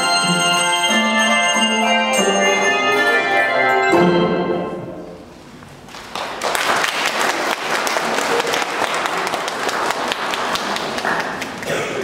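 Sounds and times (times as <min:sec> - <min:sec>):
audience applause: 0:05.9 - 0:12.0.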